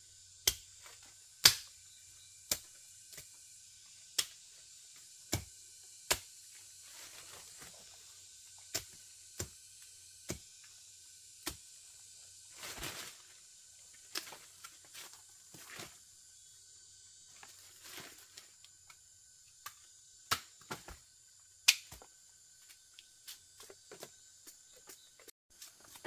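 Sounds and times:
rustling: 12.5 - 13.4.

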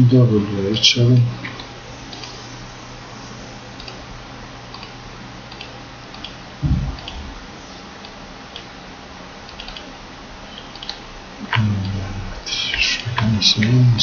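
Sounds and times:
low background hiss: 0.0 - 14.0
dull low thump: 6.6 - 7.5
keyboard clicks: 9.5 - 9.9, 10.6 - 12.0.

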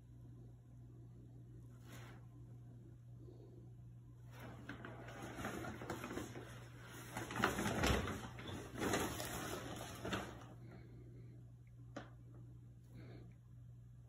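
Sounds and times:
paper bag rustling: 4.4 - 10.6.

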